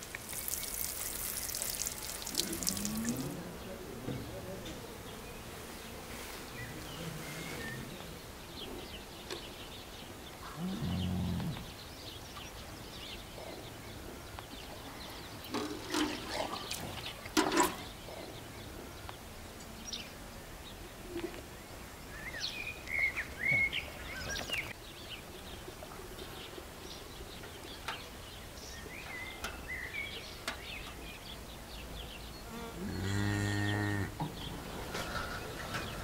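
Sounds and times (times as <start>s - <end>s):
small birds chirping: 0.0s - 36.0s
low animal call: 2.3s - 3.6s, 10.4s - 11.8s
bucket knocks: 15.5s - 16.8s, 17.4s - 17.8s
cow feeding from metal bucket: 15.5s - 17.9s.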